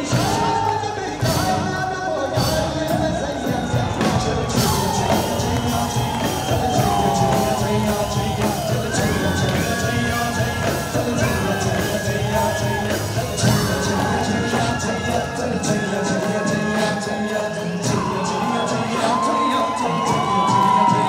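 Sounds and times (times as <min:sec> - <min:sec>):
beatboxing rhythm: 0:00.0 - 0:21.0
man singing: 0:00.0 - 0:21.0.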